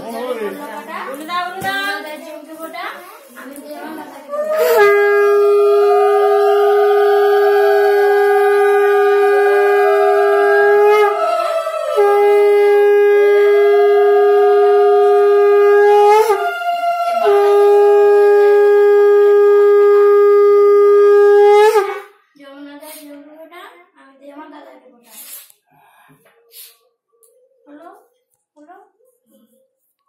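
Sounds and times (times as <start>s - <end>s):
conch shell blasts: 4.6s - 22.2s.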